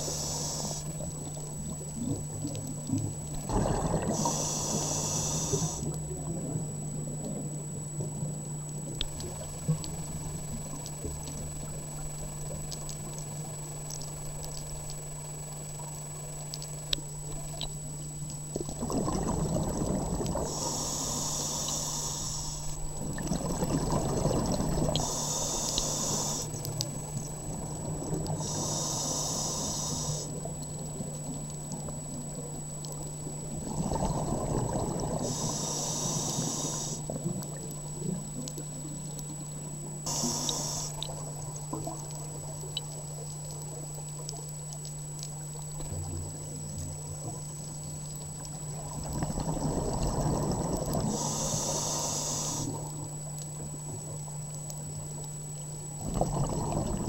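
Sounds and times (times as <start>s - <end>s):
regulator inhalation hisses: 0.0s - 0.9s, 4.1s - 5.9s, 20.4s - 22.8s, 24.9s - 26.6s, 28.4s - 30.4s, 35.2s - 37.1s, 40.1s - 41.1s, 51.1s - 52.9s
thin high whine: 0.0s - 1.4s, 3.2s - 16.9s, 20.4s - 30.5s, 33.9s - 37.4s, 38.0s - 41.5s, 51.0s - 54.0s
steady low hum: 0.0s - 57.0s
exhaled bubbles rumbling: 0.8s - 15.5s, 17.0s - 21.3s, 22.7s - 28.7s, 30.3s - 35.6s, 36.3s - 40.4s, 41.0s - 44.7s, 45.3s - 51.8s, 52.7s - 57.0s.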